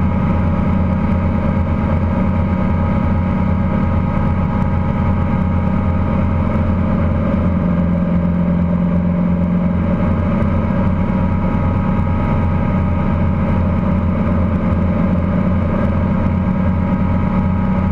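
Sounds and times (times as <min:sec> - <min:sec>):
helicopter engine and rotor hum: 0:00.0 - 0:17.9.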